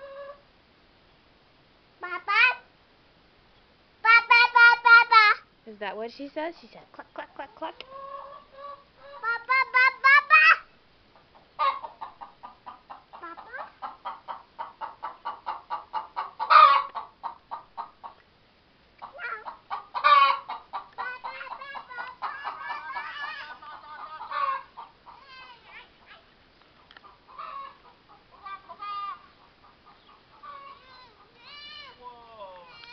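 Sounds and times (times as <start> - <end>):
hen clucking: 0.0 - 0.4, 2.0 - 2.7, 6.9 - 18.2, 19.0 - 32.9
loud hen calls: 0.0 - 0.4, 2.0 - 2.7, 7.2 - 18.2, 19.0 - 25.8, 27.0 - 32.9.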